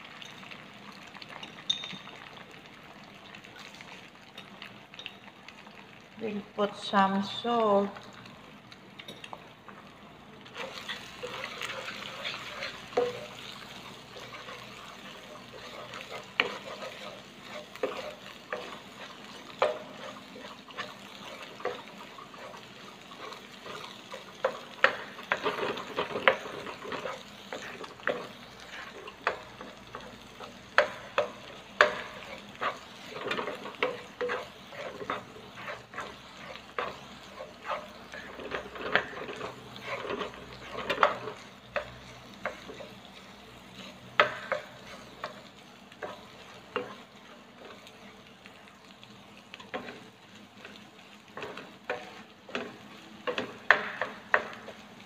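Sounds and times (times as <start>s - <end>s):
light sizzle of frying: 0.0s - 55.0s
spatula scraping frying pan: 10.4s - 54.9s
spatula knocking on pan: 53.3s - 54.6s.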